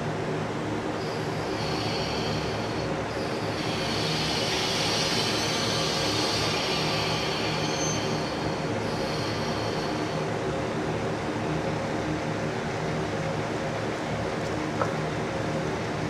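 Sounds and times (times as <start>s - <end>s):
diesel train engines running: 0.0s - 16.0s
high brake squeal: 1.0s - 10.3s.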